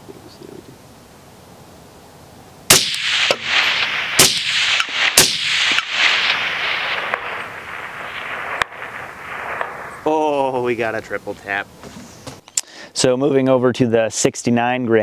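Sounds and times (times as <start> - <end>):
rolling echo off hills: 2.5 - 12.4
faint sharp cracks: 2.7 - 10.1
rifle shots: 2.7 - 10.1.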